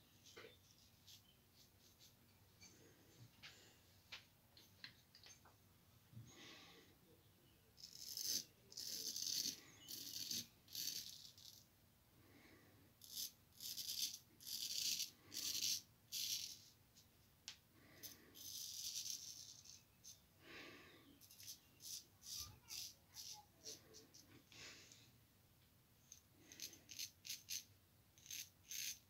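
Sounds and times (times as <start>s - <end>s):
razor scraping stubble: 7.8s - 11.6s, 21.2s - 24.2s, 26.5s - 29.0s.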